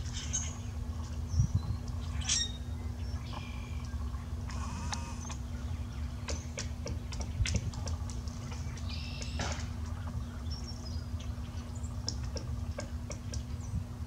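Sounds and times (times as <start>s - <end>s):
low steady rumble: 0.0s - 14.0s
woodpecker tapping: 6.2s - 10.2s, 12.0s - 13.5s.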